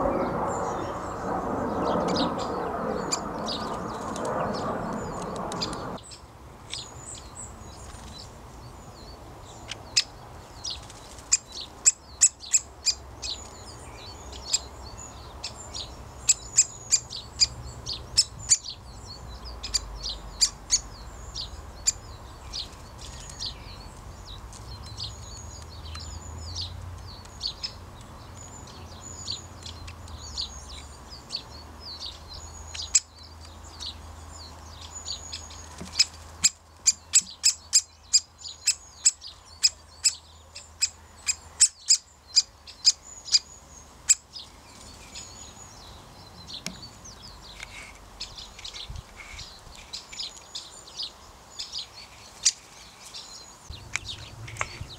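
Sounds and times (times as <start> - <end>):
soft high twittering: 0.0 - 6.1
woodpecker kik calls: 35.2 - 44.3.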